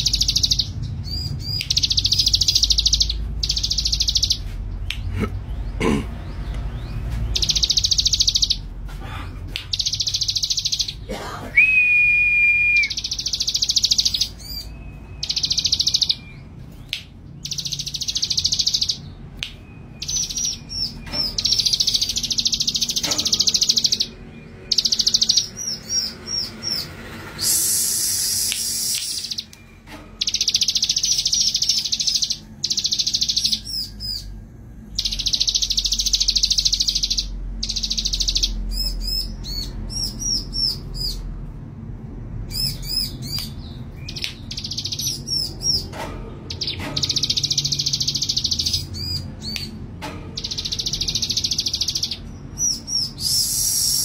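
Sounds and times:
bird sharp high chips: 0:24.7 - 0:34.2, 0:50.4 - 0:54.0.

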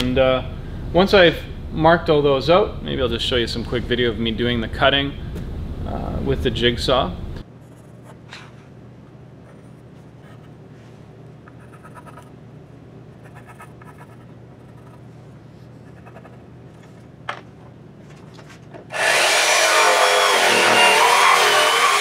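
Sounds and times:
low steady hum: 0:00.0 - 0:18.9
jigsaw cutting wood board: 0:18.9 - 0:22.0.

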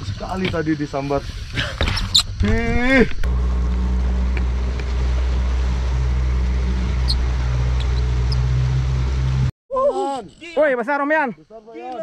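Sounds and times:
boat engine running: 0:03.2 - 0:09.5.

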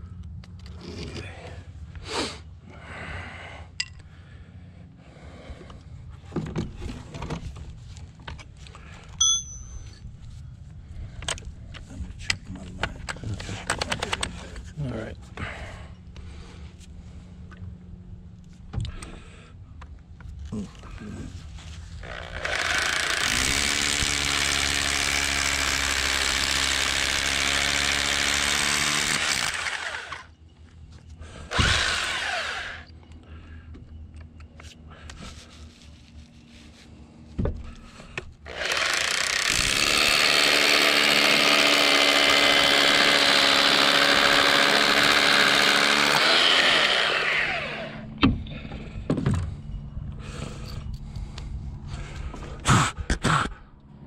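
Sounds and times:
electric drill boring concrete: 0:22.0 - 0:30.3, 0:31.5 - 0:32.9, 0:38.5 - 0:48.1.

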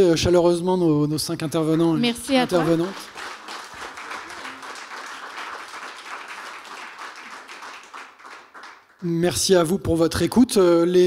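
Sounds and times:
small audience applauding: 0:02.0 - 0:09.6.

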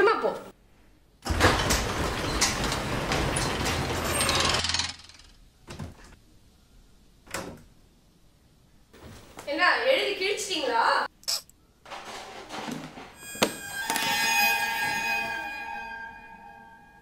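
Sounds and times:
garage door opening: 0:01.2 - 0:06.2, 0:11.9 - 0:15.4.

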